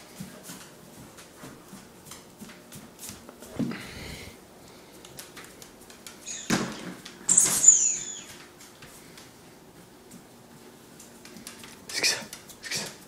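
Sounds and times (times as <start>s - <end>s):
squeaky dog toy squeaking: 7.3s - 8.4s.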